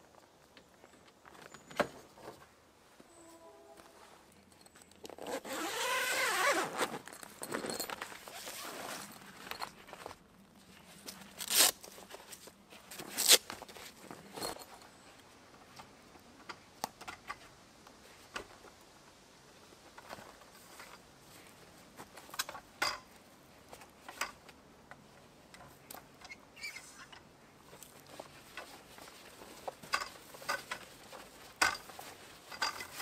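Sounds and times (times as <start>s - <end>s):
handling noises: 0.1s - 18.7s, 19.9s - 33.0s
zip pulled open: 5.1s - 7.1s
straps ripping open: 11.3s - 11.9s, 13.0s - 13.7s.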